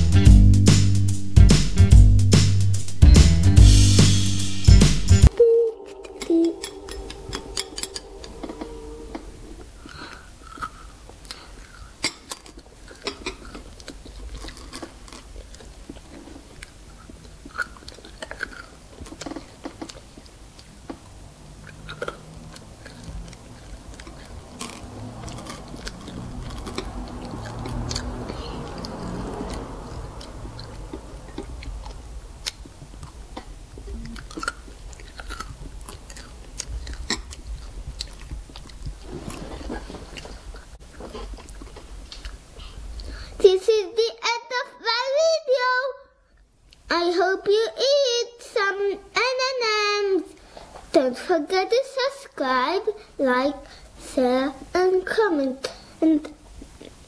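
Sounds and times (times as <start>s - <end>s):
child chewing and crunching candy: 5.3s - 43.7s, 50.2s - 57.0s.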